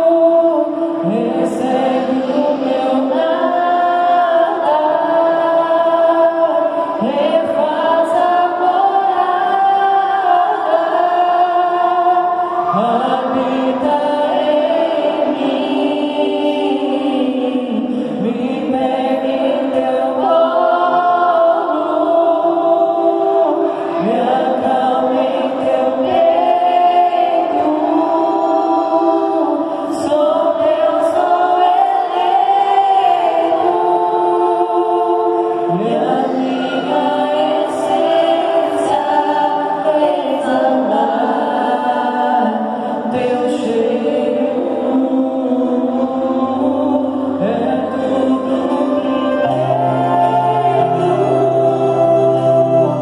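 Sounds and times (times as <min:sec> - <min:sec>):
group singing in harmony: 0:00.0 - 0:53.0
keyboard: 0:00.0 - 0:53.0
acoustic guitar: 0:45.6 - 0:53.0.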